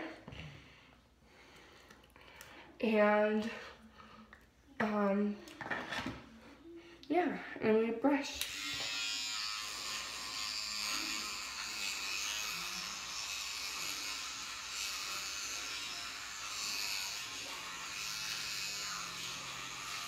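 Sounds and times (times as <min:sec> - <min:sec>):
electric toothbrush buzzing: 0:08.2 - 0:20.0.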